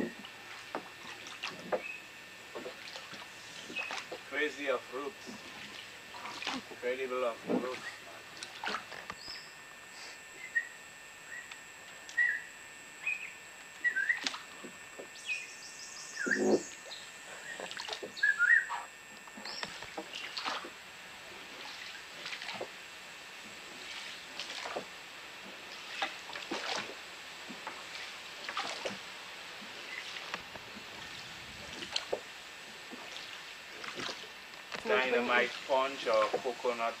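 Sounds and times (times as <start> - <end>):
oars pulling through water: 0.0 - 37.0
birds chirping: 3.4 - 4.6, 9.1 - 9.6, 10.3 - 14.3, 15.0 - 20.4
high bird trill: 12.2 - 14.2, 15.2 - 19.7.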